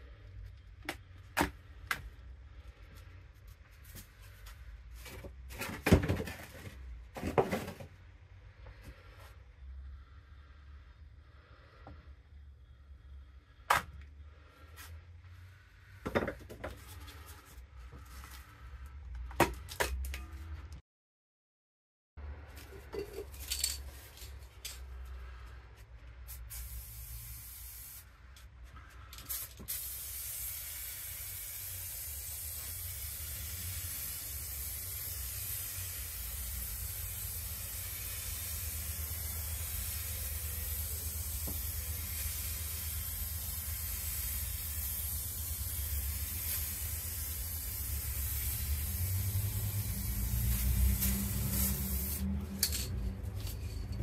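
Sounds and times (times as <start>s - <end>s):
spray can hissing: 26.3s - 28.1s, 29.3s - 52.7s.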